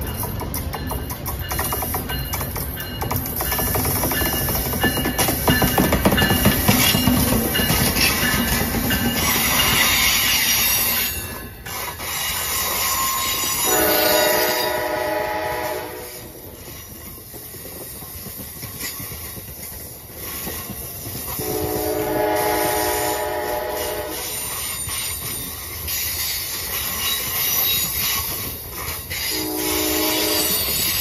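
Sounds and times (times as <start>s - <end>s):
train running on rails: 0.0s - 31.0s
train air horn blasts: 13.0s - 16.5s, 21.4s - 24.5s, 29.3s - 30.8s.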